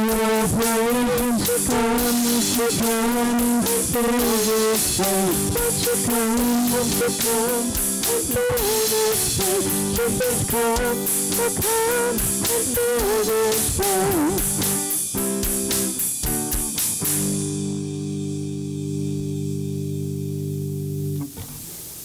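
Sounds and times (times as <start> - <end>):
woman singing: 0.0 - 14.5
steady drum beat: 0.0 - 19.4
strummed acoustic guitars: 0.0 - 21.6.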